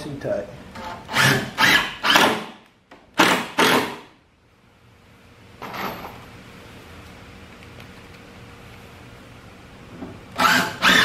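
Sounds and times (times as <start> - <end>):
cordless drill driving screw: 10.4 - 11.0.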